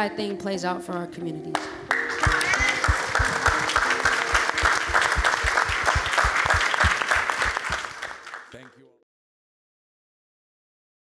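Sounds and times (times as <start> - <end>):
crowd applauding and cheering: 1.6 - 8.8
low drum beat thumping: 4.8 - 7.7.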